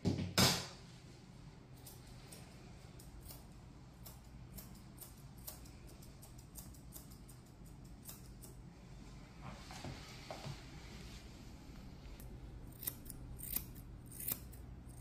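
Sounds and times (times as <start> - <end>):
scissors snipping fur: 1.8 - 8.6, 12.2 - 15.0.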